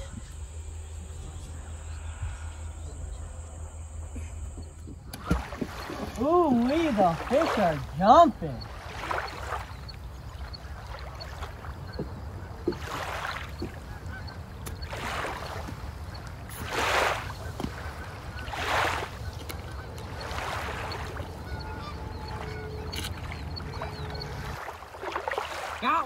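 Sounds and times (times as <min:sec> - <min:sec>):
faint bird calls: 0:00.0 - 0:26.0
rushing water swells: 0:05.2 - 0:26.0.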